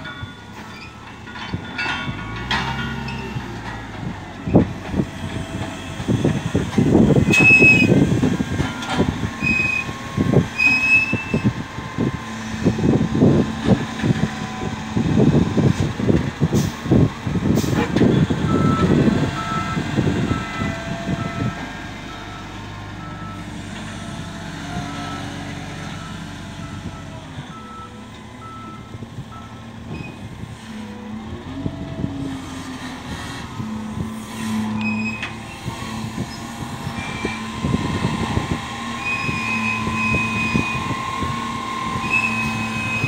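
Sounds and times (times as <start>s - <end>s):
diesel engine rumbling: 0.0s - 43.0s
reversing alarm beeps: 42.1s - 43.0s.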